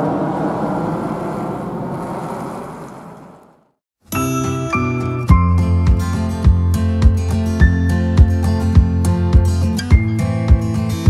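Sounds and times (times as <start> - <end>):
jet engines overhead: 0.0 - 3.6
faint engine whine: 0.0 - 3.7.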